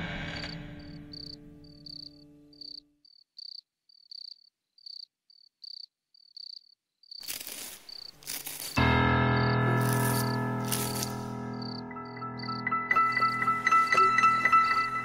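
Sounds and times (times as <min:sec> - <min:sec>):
crickets chirping: 0:00.2 - 0:08.8, 0:09.4 - 0:11.8, 0:12.4 - 0:12.6
held music chord: 0:08.8 - 0:15.0.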